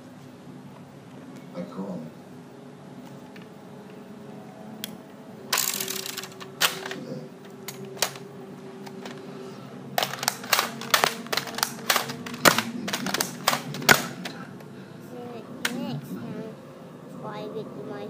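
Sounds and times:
plastic toy blaster clicks: 0:05.5 - 0:07.0, 0:07.7 - 0:08.2, 0:10.0 - 0:14.1.

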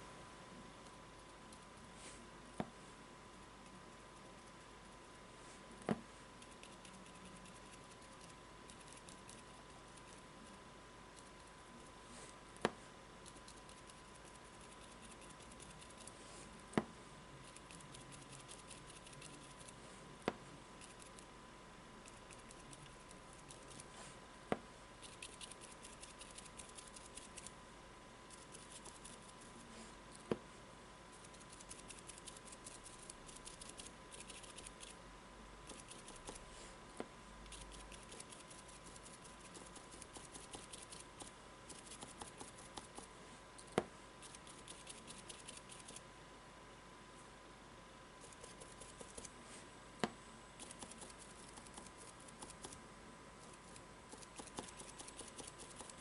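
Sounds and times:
brush dabbing on cardboard: 0:53.4 - 0:56.0.

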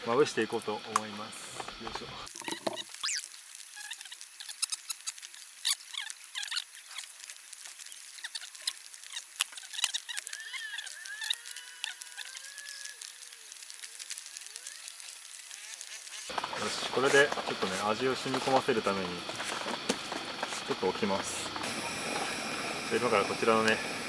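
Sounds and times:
raindrops pattering and dripping: 0:00.1 - 0:24.0
short wavering squeaks: 0:02.8 - 0:17.9.

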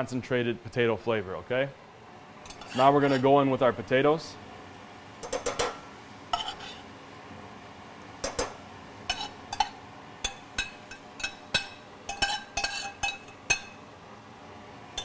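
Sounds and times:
spoon and fork scraping saucepan: 0:02.4 - 0:03.4, 0:05.2 - 0:06.9, 0:09.1 - 0:13.8.

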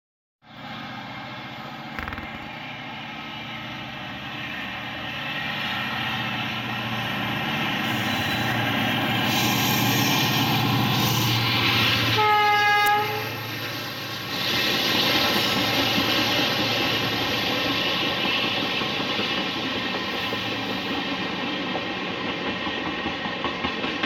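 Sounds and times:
diesel locomotive engine: 0:00.5 - 0:24.0
train horn blast: 0:12.2 - 0:13.4.

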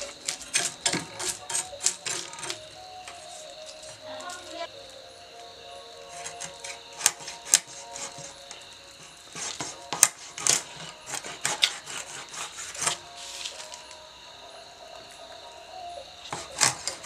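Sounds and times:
knife scraping fish scales: 0:00.0 - 0:04.6, 0:06.1 - 0:08.3, 0:09.3 - 0:13.8.

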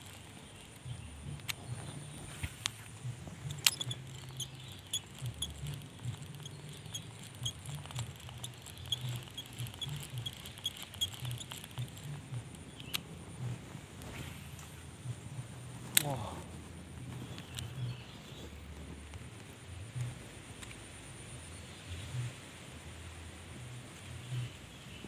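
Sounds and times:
fishing reel ticking: 0:00.0 - 0:13.1
fishing reel sharp click: 0:03.4 - 0:13.0.

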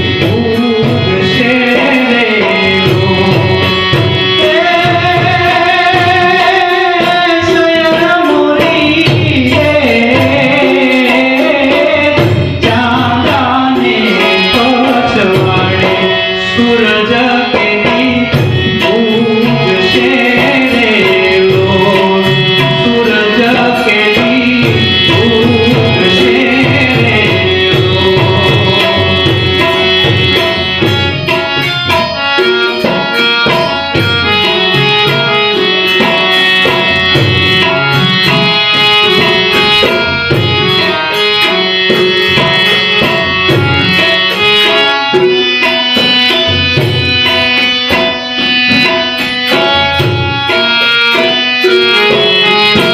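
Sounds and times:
harmonium: 0:00.0 - 0:52.9
man singing: 0:00.0 - 0:52.9
tabla: 0:00.0 - 0:52.9.

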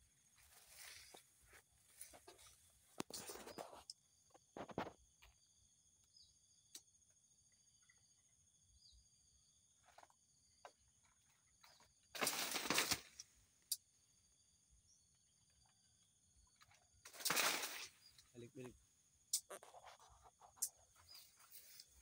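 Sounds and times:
palm fronds rustling: 0:00.2 - 0:03.6, 0:12.2 - 0:13.3, 0:17.1 - 0:18.6, 0:21.0 - 0:22.0
coconut crashing through fronds: 0:12.2 - 0:13.2, 0:17.1 - 0:18.0
insect buzzing: 0:17.0 - 0:22.0.

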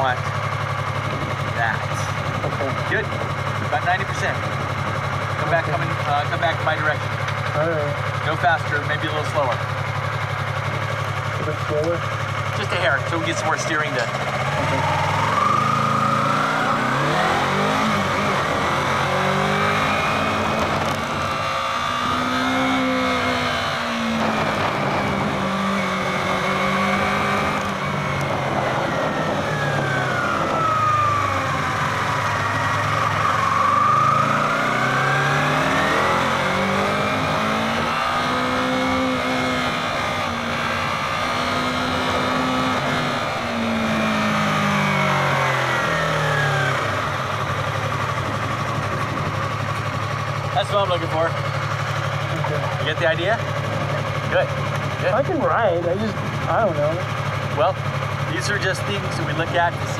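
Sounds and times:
motorcycle engine revving: 0:00.0 - 0:59.9
wind noise rushing: 0:01.0 - 0:01.5, 0:27.0 - 0:31.2, 0:48.0 - 0:50.0.

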